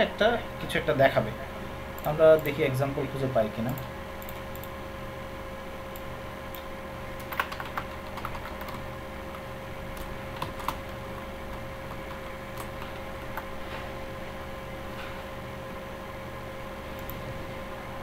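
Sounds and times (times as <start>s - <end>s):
steady background hum: 0.0s - 18.0s
keyboard typing: 3.7s - 4.7s, 5.9s - 13.6s.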